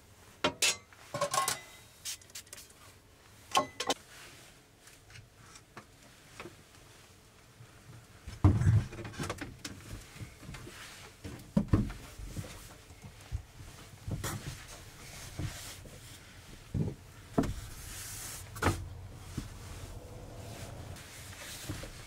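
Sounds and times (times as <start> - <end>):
soft shuffle: 9.8 - 22.0
wooden knocks and thumps: 16.7 - 17.7.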